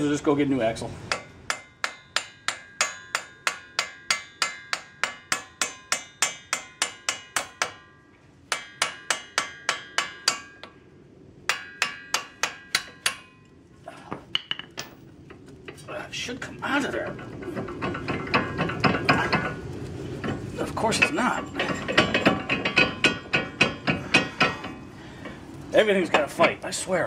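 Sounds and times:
hammer striking metal socket: 21.0 - 24.8.

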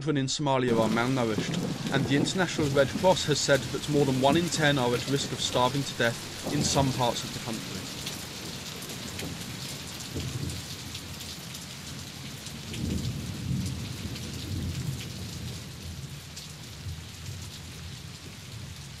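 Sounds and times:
thunder rolling: 0.7 - 10.8, 12.7 - 15.6
rain pattering: 0.7 - 19.0.

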